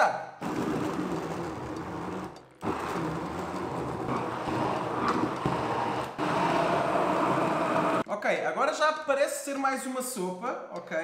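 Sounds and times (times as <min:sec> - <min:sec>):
immersion blender running: 0:00.4 - 0:08.0.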